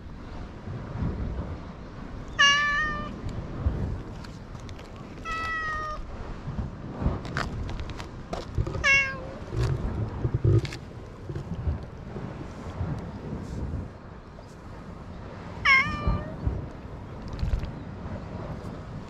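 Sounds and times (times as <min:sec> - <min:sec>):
cat meowing: 0:02.4 - 0:03.2, 0:05.2 - 0:06.0, 0:08.8 - 0:09.4, 0:15.7 - 0:16.4.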